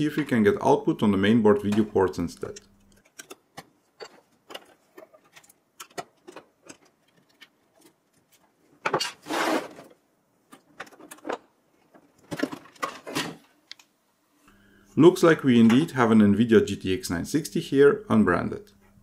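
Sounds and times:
metal and plastic clicks: 2.5 - 8.0.

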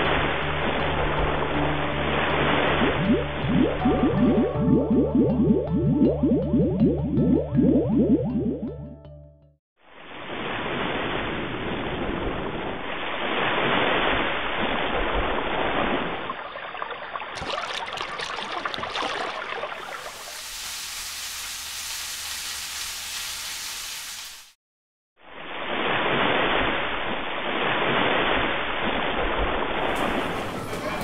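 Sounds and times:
water splashing around a leg: 13.7 - 20.8
rushing water: 15.4 - 21.9, 29.8 - 31.0.

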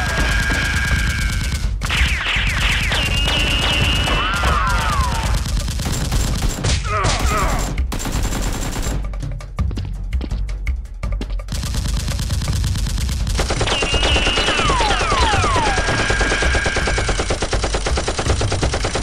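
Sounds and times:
automatic gunfire: 0.0 - 9.1, 11.5 - 19.0
falling whistles: 13.7 - 16.6.

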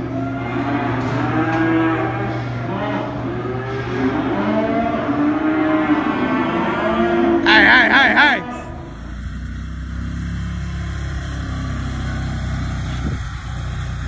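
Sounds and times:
cattle mooing: 0.0 - 10.4.

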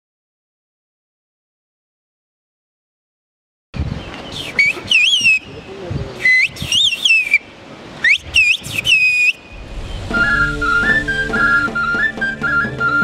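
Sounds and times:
woman whistling high sliding pitch: 4.4 - 5.4, 6.3 - 7.4, 8.0 - 9.4, 10.1 - 13.0.

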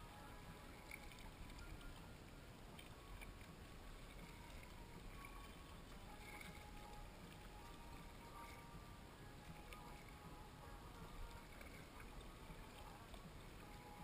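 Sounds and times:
paddle dipping in water: 0.0 - 14.0
water moving along hull: 0.0 - 14.0.

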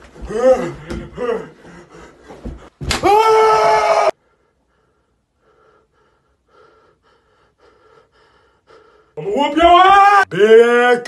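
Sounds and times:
man shrieking: 2.9 - 4.2, 9.2 - 11.0.

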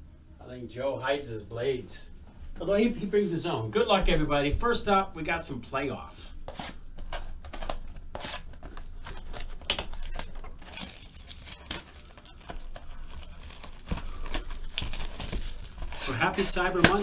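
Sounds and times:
plastic wrap rustling: 6.4 - 17.0.

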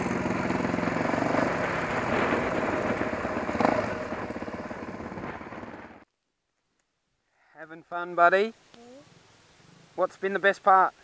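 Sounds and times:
motorcycle engine running: 0.0 - 6.0.

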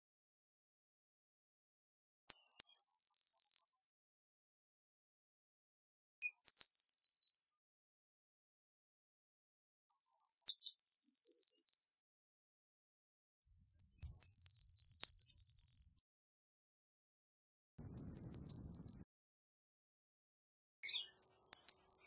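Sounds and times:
bird singing with trills: 6.2 - 7.6, 9.9 - 12.0, 13.5 - 16.0, 17.8 - 19.0, 20.8 - 22.0.

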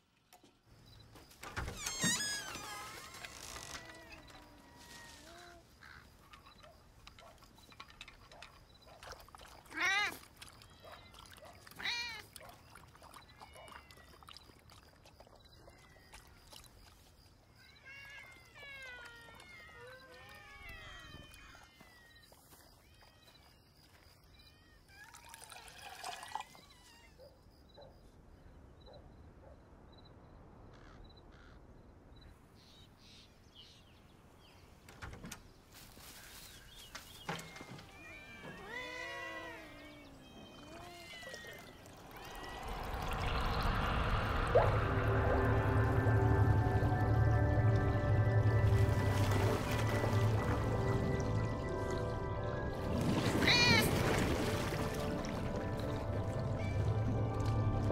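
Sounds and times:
cats meowing: 9.7 - 12.3, 17.8 - 22.1, 37.8 - 42.8, 53.4 - 53.9.

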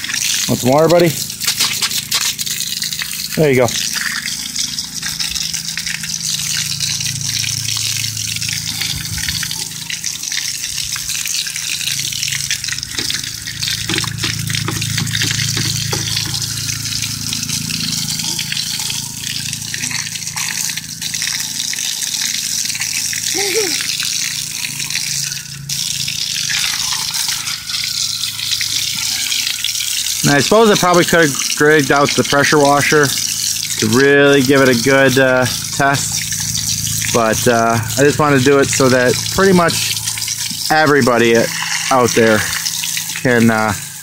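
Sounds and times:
water splashing on concrete: 0.0 - 17.7
hose spraying water on wheel: 0.0 - 44.0.

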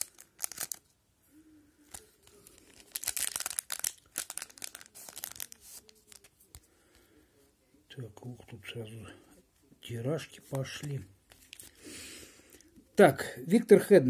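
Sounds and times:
plastic wrapper crinkling and tearing: 0.0 - 0.9, 1.8 - 6.6, 10.6 - 11.8.

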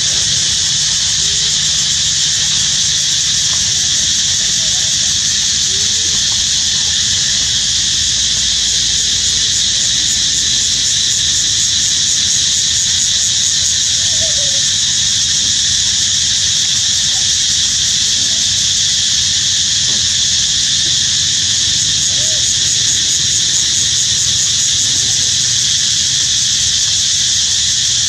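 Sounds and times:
insect chorus drone: 0.0 - 28.0.

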